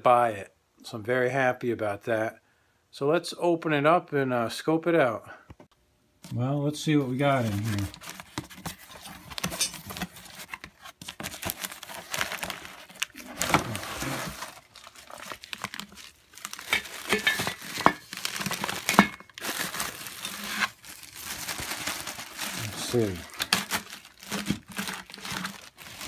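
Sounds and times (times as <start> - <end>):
plastic packaging crinkling: 7.1 - 26.0.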